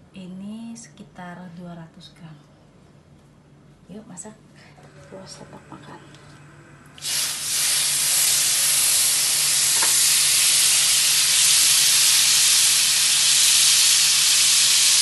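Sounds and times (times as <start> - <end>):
butter sizzling in a wok: 7.0 - 15.0.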